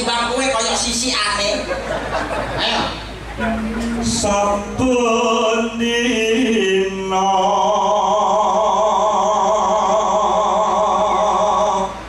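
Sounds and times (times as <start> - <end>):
man singing with vibrato: 3.4 - 12.0.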